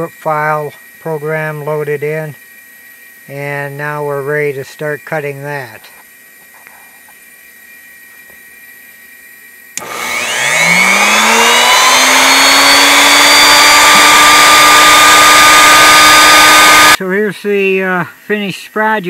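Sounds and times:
router motor whine: 9.8s - 17.0s.

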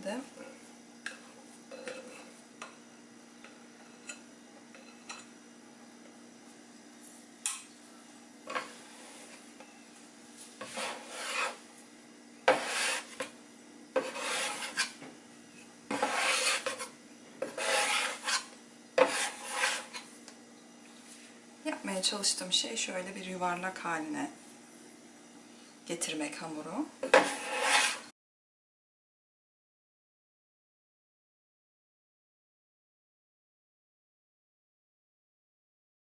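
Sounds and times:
metal scraper scraping wooden board: 10.6s - 11.6s, 12.5s - 13.3s, 14.0s - 15.0s, 15.9s - 20.0s, 27.0s - 28.1s.

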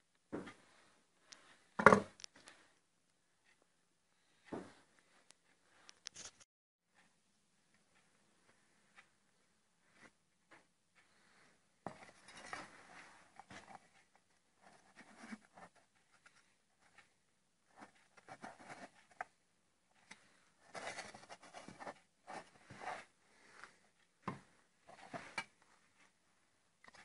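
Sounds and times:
light scrapes and rustles: 11.9s - 14.1s.

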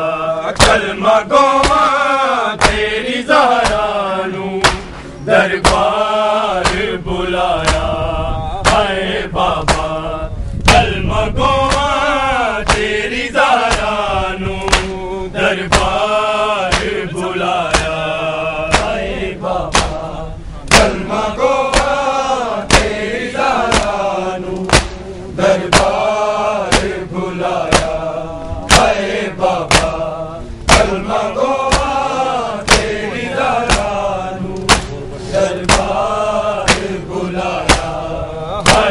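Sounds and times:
men chanting a lament: 0.0s - 38.9s
hands slapping bare chests: 0.6s - 0.9s, 1.6s - 1.9s, 2.6s - 2.9s, 3.6s - 3.9s, 4.6s - 5.0s, 5.6s - 6.0s, 6.6s - 6.9s, 7.6s - 7.9s, 8.6s - 8.9s, 9.6s - 9.9s, 10.7s - 10.9s, 11.6s - 12.0s, 12.6s - 13.0s, 13.6s - 14.0s, 14.6s - 15.0s, 15.7s - 16.0s, 16.7s - 18.0s, 18.7s - 19.0s, 19.7s - 20.1s, 20.7s - 21.0s, 21.7s - 22.0s, 22.7s - 23.0s, 23.6s - 25.0s, 25.6s - 26.1s, 26.7s - 27.0s, 27.6s - 28.0s, 28.7s - 30.0s, 30.7s - 33.0s, 33.7s - 34.0s, 34.6s - 35.0s, 35.6s - 37.0s, 37.6s - 38.0s, 38.6s - 38.9s.

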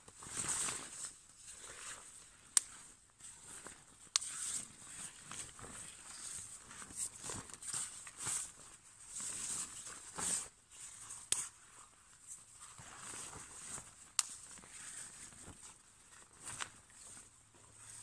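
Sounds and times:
fabric rustling and swishing: 0.0s - 18.0s.

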